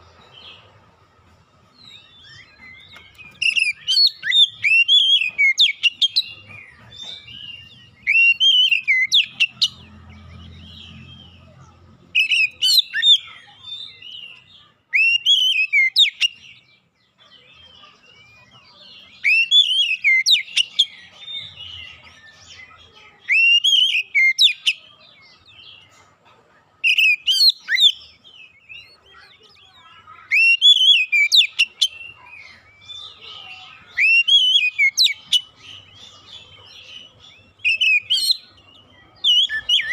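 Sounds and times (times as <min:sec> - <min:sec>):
bird singing whistles and clicks: 0:02.5 - 0:06.2.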